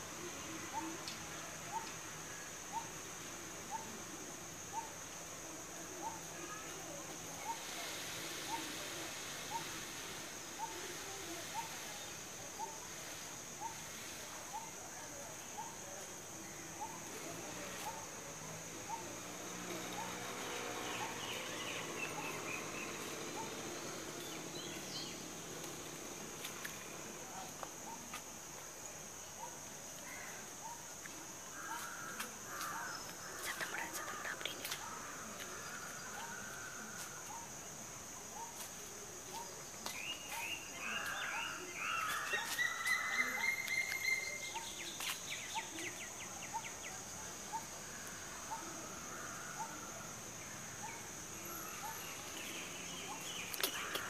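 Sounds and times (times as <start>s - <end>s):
high insect drone: 0.0s - 54.0s
small birds chirping: 15.6s - 28.2s, 38.4s - 48.7s, 50.5s - 54.0s
songbird chirps whistle and trill: 42.4s - 45.6s.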